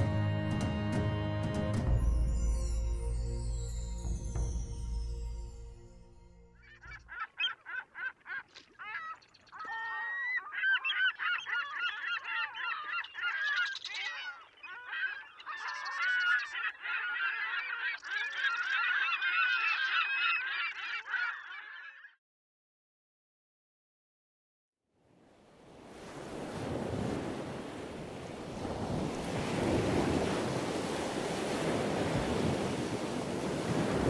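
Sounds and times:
gulls calling: 6.6 - 22.1.

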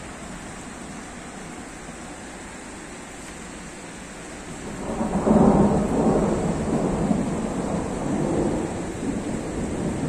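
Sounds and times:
rain hissing: 0.0 - 10.0
thunder rumbling: 4.6 - 10.0.

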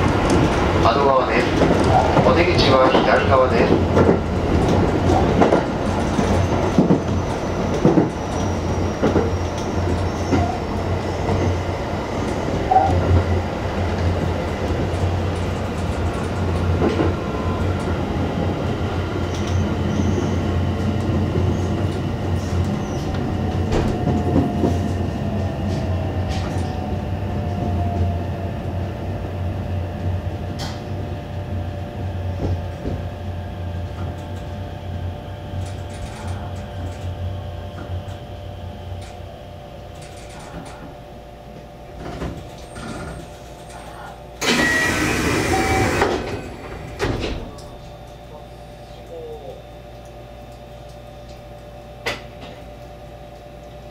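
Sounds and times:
train wheels rumbling on rails: 0.0 - 48.2
traction motor whine: 44.4 - 47.0.

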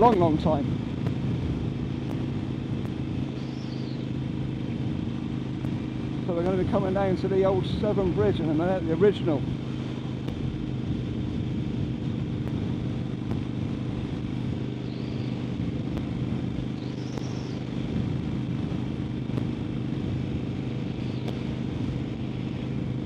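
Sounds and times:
motorcycle engine running: 0.0 - 23.0
wind and road noise: 0.0 - 23.0.

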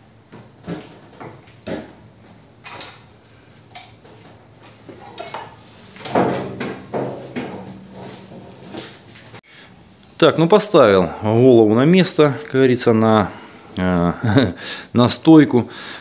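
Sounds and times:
metal clanks and knocks: 4.9 - 9.4.

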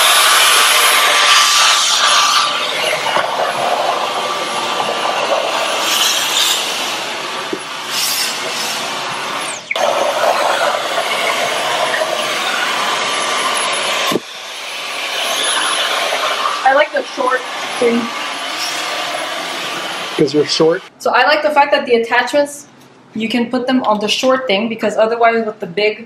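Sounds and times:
stick vacuum whirring: 0.0 - 7.7.

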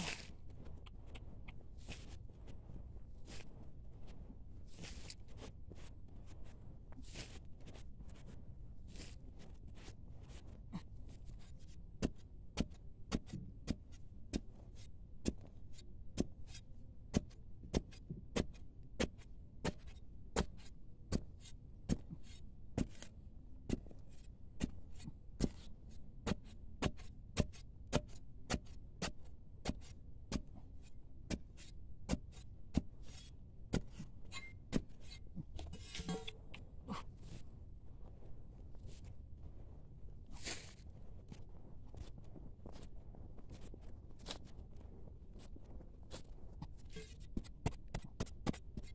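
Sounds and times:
spade chopping into dry soil: 31.3 - 37.0.

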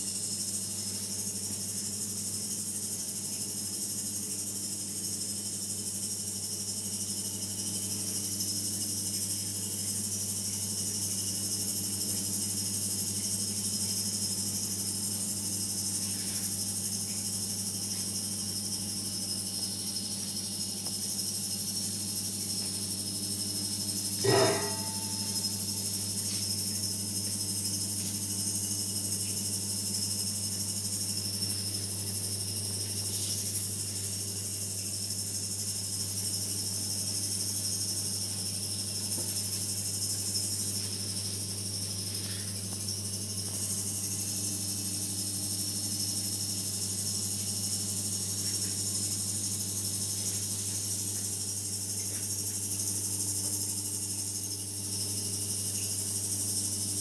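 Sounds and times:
electrical hum: 15.1 - 29.6
high shimmering hiss: 24.2 - 26.0.

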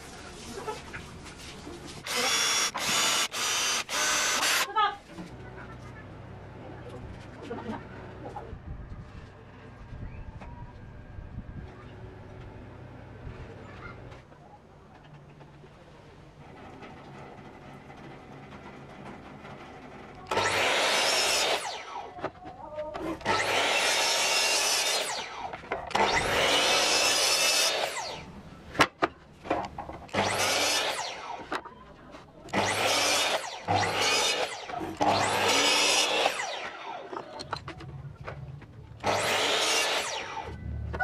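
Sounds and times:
miter saw cutting board: 2.0 - 4.7, 19.8 - 22.3, 23.0 - 28.4, 30.1 - 31.7, 32.5 - 37.6, 39.0 - 41.0.

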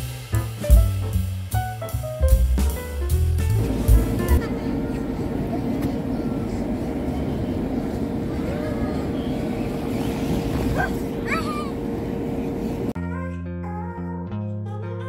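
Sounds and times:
electric air blower humming: 3.5 - 13.0
children squealing: 10.2 - 11.9.

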